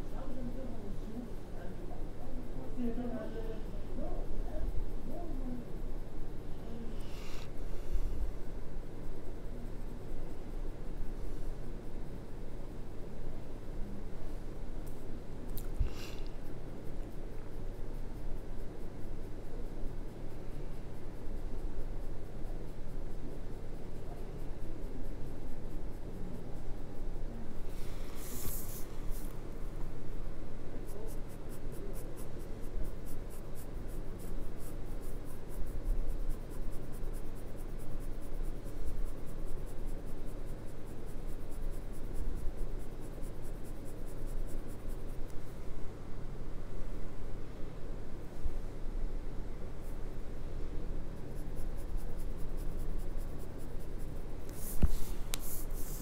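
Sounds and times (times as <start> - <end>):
pencil shading on paper: 20.8 - 29.3, 30.8 - 45.4, 51.2 - 56.0.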